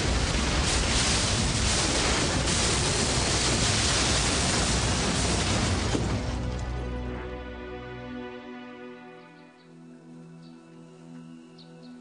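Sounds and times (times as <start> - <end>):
aircraft crashing through trees: 0.0 - 6.9.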